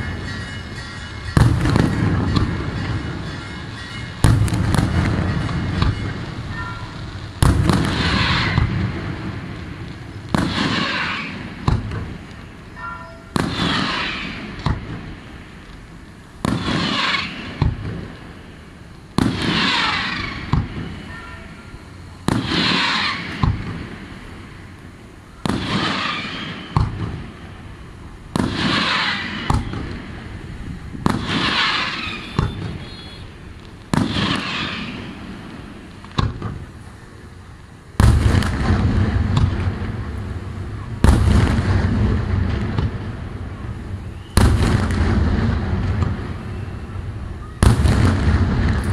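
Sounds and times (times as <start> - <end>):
fireworks bursting: 0.0 - 48.9
small firework pops: 9.8 - 12.8, 13.4 - 15.8, 16.4 - 18.2, 19.0 - 20.9, 22.3 - 23.9, 25.4 - 27.3, 28.3 - 30.1, 33.5 - 36.8, 38.0 - 40.0, 41.0 - 43.1, 44.2 - 46.4.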